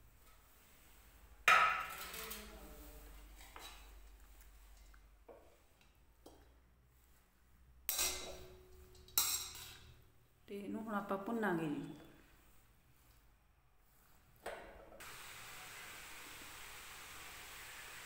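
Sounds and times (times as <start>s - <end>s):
metal spoon scraping metal pan: 7.9s - 10.0s.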